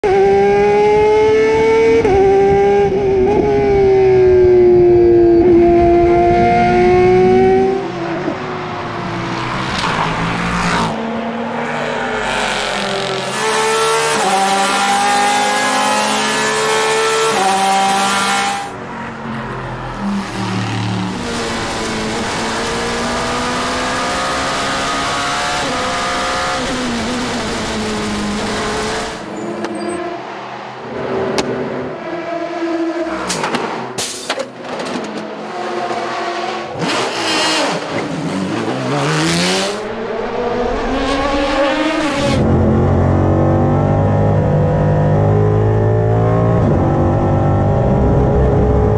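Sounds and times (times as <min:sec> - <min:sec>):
racing car engines revving: 0:00.0 - 0:48.9.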